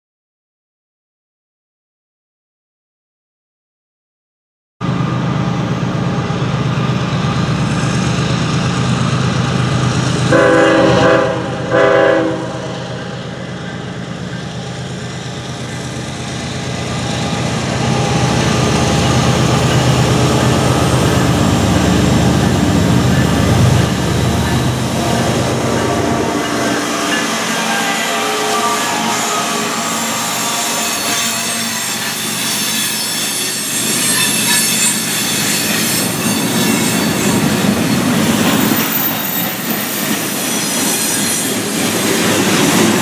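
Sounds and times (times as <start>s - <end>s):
diesel locomotive drone: 4.8s - 43.0s
train horn blasts: 10.3s - 13.2s, 21.8s - 35.0s.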